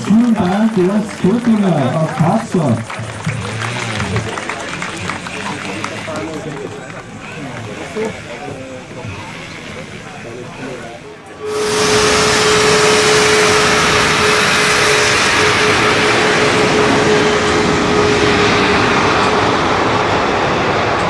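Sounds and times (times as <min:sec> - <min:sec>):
jet engine roar: 0:00.0 - 0:08.2, 0:09.0 - 0:21.0
steady tone: 0:11.2 - 0:21.0.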